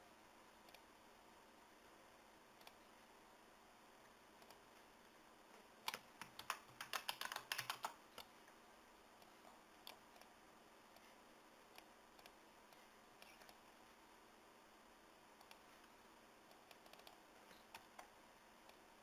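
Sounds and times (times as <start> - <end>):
mouse clicks: 2.6 - 2.8, 4.4 - 4.6, 9.2 - 10.3, 11.7 - 13.6, 15.4 - 15.7, 16.5 - 18.8
keyboard typing: 5.8 - 8.3, 16.5 - 18.8.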